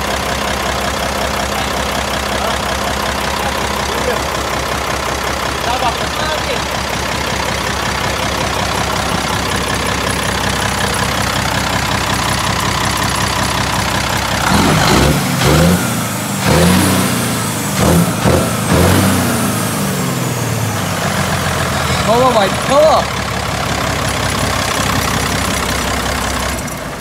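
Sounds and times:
diesel truck engine idling: 0:00.0 - 0:27.0
engine revving: 0:14.2 - 0:23.1.

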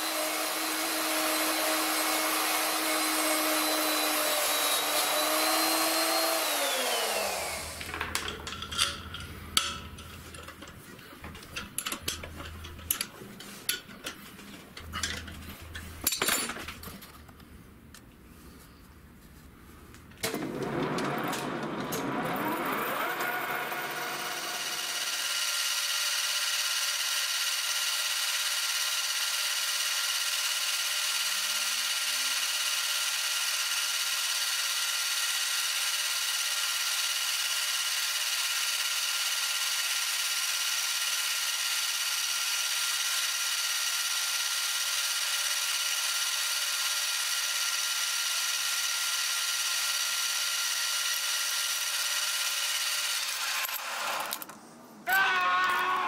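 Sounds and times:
metal lathe whining: 0:00.0 - 0:13.1, 0:20.2 - 0:25.6.

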